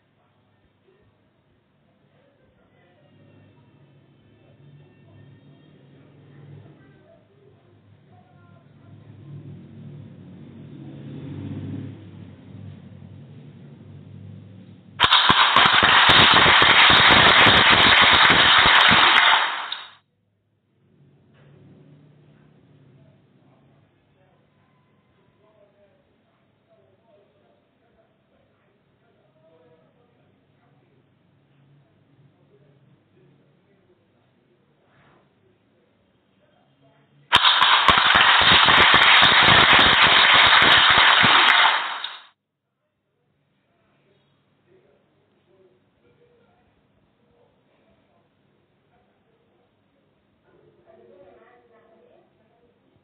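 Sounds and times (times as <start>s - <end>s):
loud burst of crackling noise: 15.0s - 20.0s, 37.3s - 42.3s.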